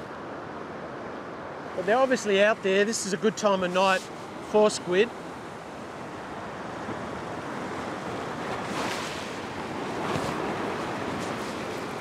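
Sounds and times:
surf breaking over rocks: 0:06.4 - 0:12.0.

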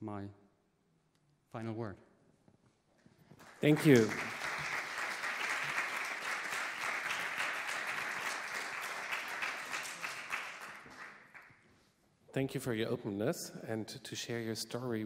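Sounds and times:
audience applauding: 0:03.3 - 0:11.6.

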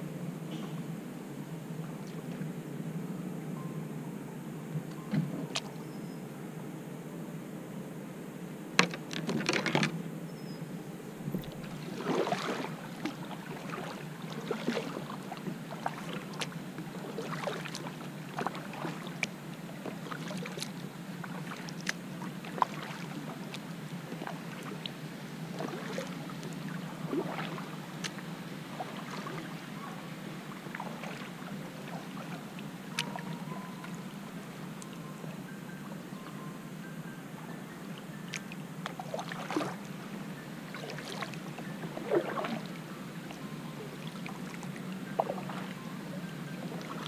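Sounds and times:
small ticks and splashes: 0:08.8 - 0:09.9, 0:11.4 - 0:35.1, 0:37.9 - 0:47.0
water dripping off paddle blades: 0:08.8 - 0:09.9, 0:11.3 - 0:35.0, 0:37.9 - 0:47.0
kayak paddle dipping through water: 0:08.8 - 0:10.0, 0:11.1 - 0:35.0, 0:37.9 - 0:47.0.

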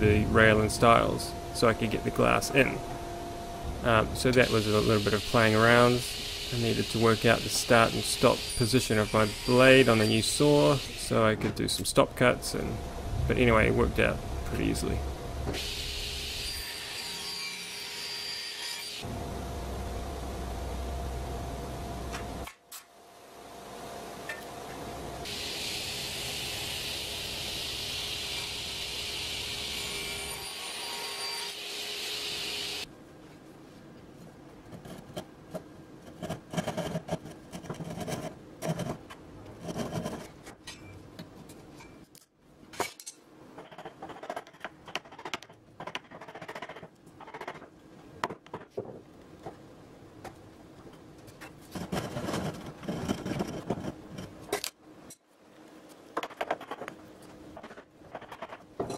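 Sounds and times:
table saw cutting wood: 0:04.4 - 0:11.1, 0:15.5 - 0:19.1, 0:25.2 - 0:32.9.

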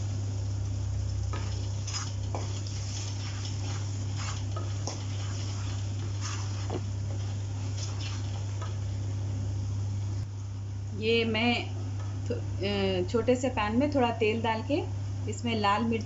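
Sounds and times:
meat sizzling in oil: 0:00.0 - 0:09.0
wooden spatula scraping pan: 0:01.3 - 0:08.8.

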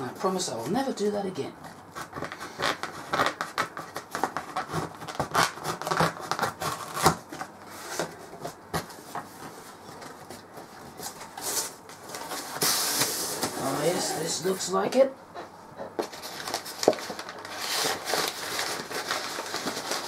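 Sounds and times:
scissors cutting packing tape: 0:02.0 - 0:09.0
cardboard scraping and rustling: 0:02.0 - 0:14.6, 0:16.0 - 0:20.0.

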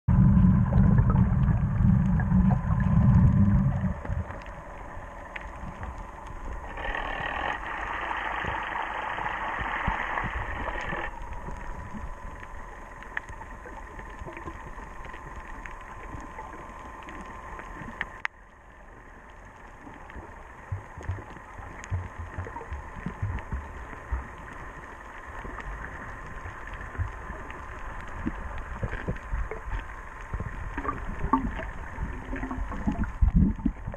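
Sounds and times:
underwater rumble of moving water: 0:00.0 - 0:33.9
faint clicks: 0:02.9 - 0:33.9
hiss: 0:06.7 - 0:11.1.

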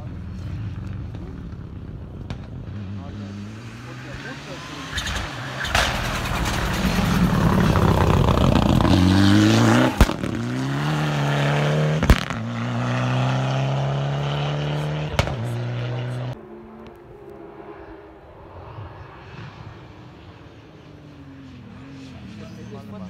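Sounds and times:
rally car engine accelerating: 0:00.3 - 0:18.2.

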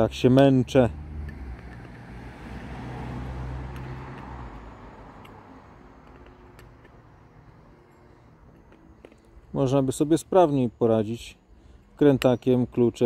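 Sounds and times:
road vehicle passing by: 0:00.0 - 0:10.2.

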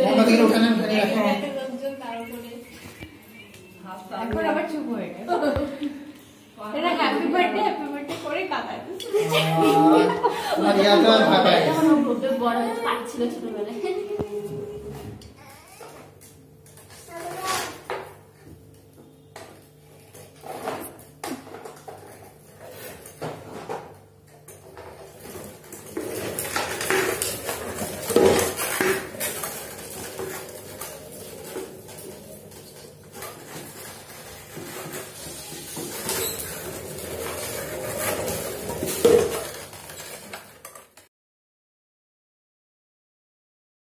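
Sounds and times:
tricycle rattling on tiles: 0:24.4 - 0:41.1.

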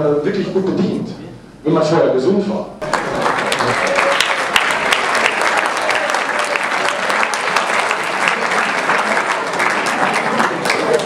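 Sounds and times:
audience applauding: 0:02.8 - 0:11.0.

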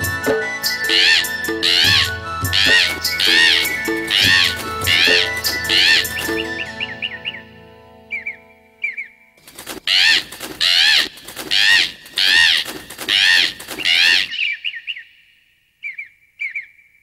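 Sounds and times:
two-note bird chirps: 0:00.3 - 0:09.2
cartoon parrot squawking: 0:00.9 - 0:06.5, 0:09.9 - 0:14.4
flapping wings: 0:01.0 - 0:06.5, 0:09.4 - 0:14.5.

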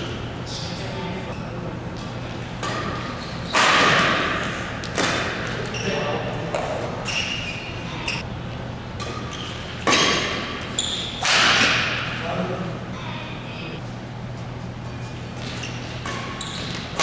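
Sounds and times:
racket hitting shuttlecock: 0:02.6 - 0:05.8, 0:09.0 - 0:12.2, 0:15.4 - 0:17.0
short high squeaks: 0:07.0 - 0:08.2, 0:10.7 - 0:11.2, 0:15.5 - 0:16.8.

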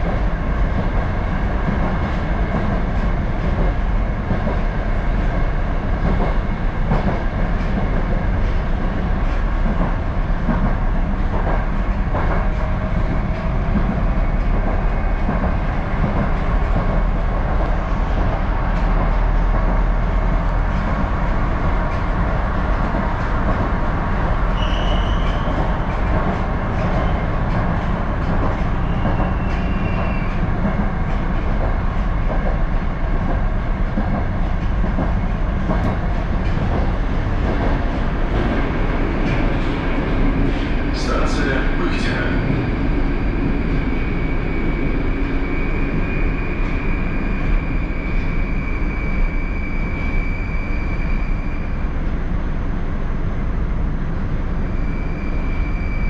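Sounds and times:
metro wheels rumbling on rails: 0:00.0 - 0:56.0
short high squeals: 0:24.6 - 0:25.6.

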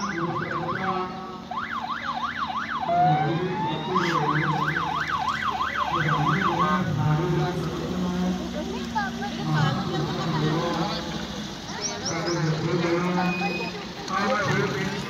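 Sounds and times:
ambulance siren yelping: 0:00.0 - 0:06.9
van engine running: 0:02.3 - 0:15.0.

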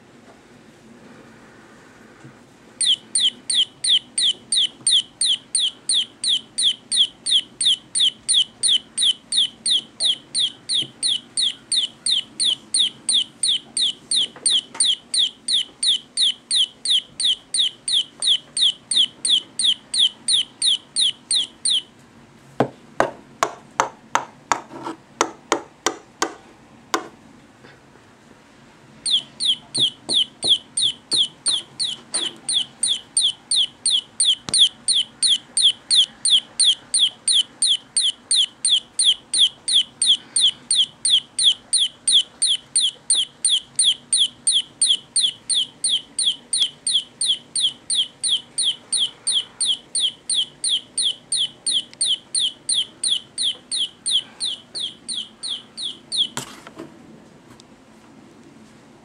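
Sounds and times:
toy chick peeping: 0:02.8 - 0:21.9, 0:29.0 - 0:56.5.

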